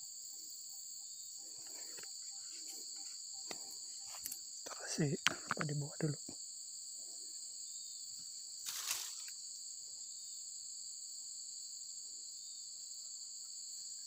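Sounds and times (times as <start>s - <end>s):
insects chirping chorus: 0.0s - 14.0s
rustling noise: 8.6s - 9.3s.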